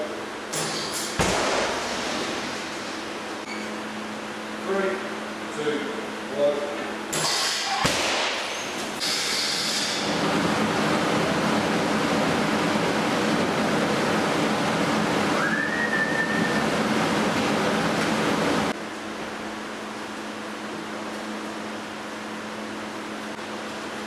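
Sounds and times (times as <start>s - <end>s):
whistle-like tone: 15.4s - 16.6s.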